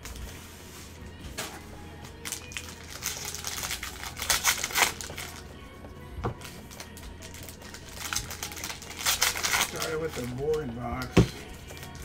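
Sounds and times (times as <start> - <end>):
cards flipped through: 1.3 - 5.5, 6.3 - 12.0
card packs crinkling and tearing: 1.4 - 5.5, 6.4 - 12.0.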